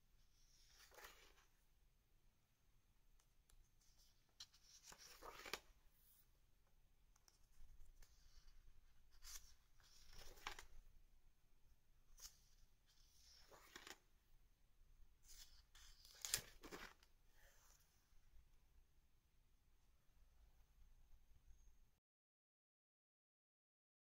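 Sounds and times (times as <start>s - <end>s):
paper pages turning: 0.3s - 1.6s, 3.8s - 6.2s, 7.2s - 11.0s, 12.1s - 14.1s, 15.2s - 17.2s
page slapping: 4.4s - 5.7s, 9.2s - 10.7s, 13.3s - 14.0s, 15.4s - 17.0s.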